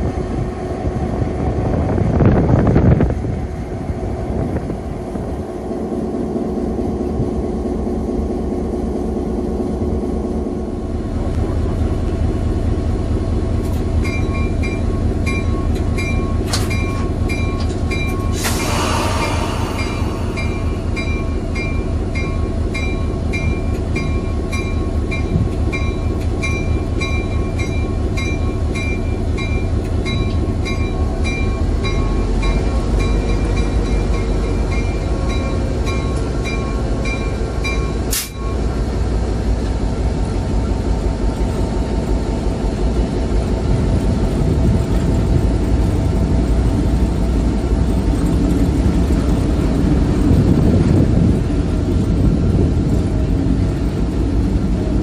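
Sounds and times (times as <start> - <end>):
diesel locomotive engine running: 0.0 - 55.0.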